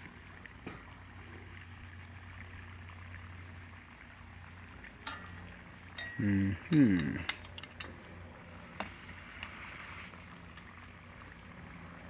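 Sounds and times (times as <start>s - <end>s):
liquid nitrogen bubbling: 0.0s - 12.0s
metal tongs clinking on pan: 5.0s - 6.3s
low vocal grunt: 6.2s - 7.3s.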